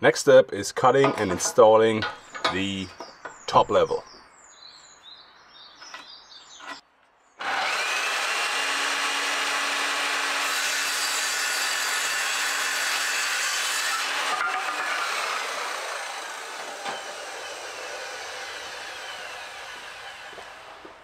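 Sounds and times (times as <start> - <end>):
circular saw cutting wood: 7.4 - 21.0.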